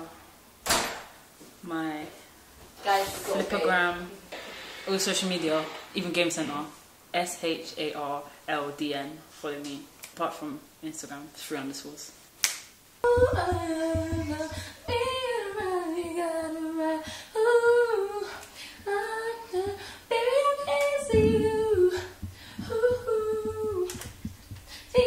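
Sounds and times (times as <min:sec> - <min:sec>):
woman singing: 0:13.0 - 0:25.0.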